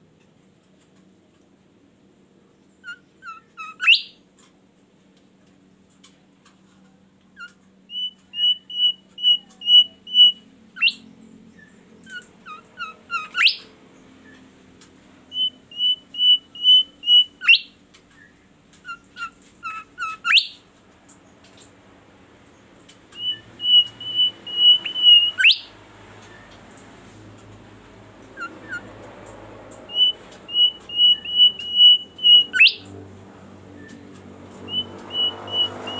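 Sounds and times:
songbird whistling song: 0:02.6 - 0:04.2, 0:07.4 - 0:14.5, 0:15.3 - 0:20.7, 0:22.9 - 0:26.6, 0:28.3 - 0:29.1, 0:29.7 - 0:33.0, 0:33.6 - 0:35.9.

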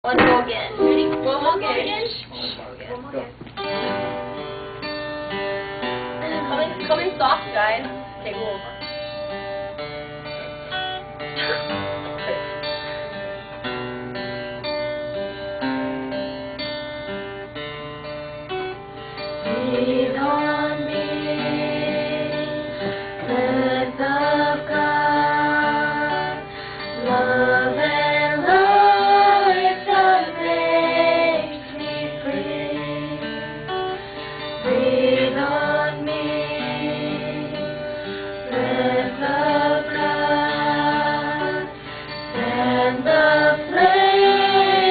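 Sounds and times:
acoustic guitar playing: 0:00.0 - 0:44.9
women singing together: 0:19.4 - 0:33.4, 0:34.6 - 0:44.9.

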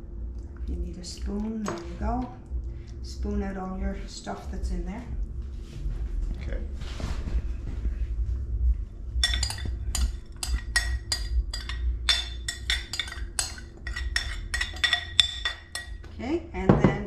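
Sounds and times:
metal spoon clinking in glass bowl: 0:09.2 - 0:16.0.

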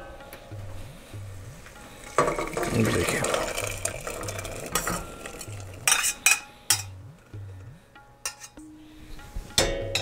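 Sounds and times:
metal spoon scraping pot: 0:01.8 - 0:07.0, 0:08.2 - 0:08.6.

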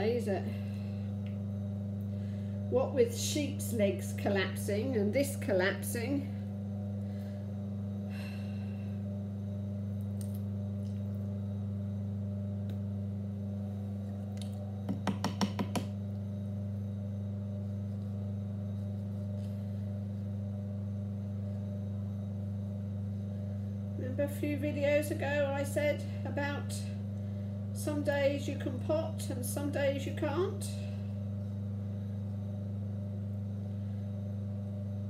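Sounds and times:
electric motor hum: 0:00.0 - 0:35.0.

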